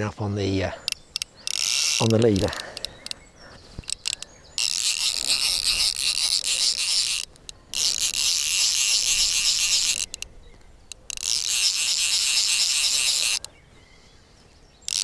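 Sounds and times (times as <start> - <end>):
fly reel drag buzzing: 0.8 - 3.2, 3.8 - 10.3, 10.9 - 13.5.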